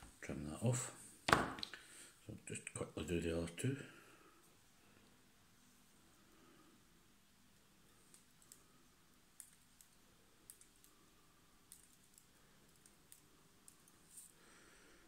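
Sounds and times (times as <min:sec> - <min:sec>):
faint thread clicks: 0:07.9 - 0:14.4.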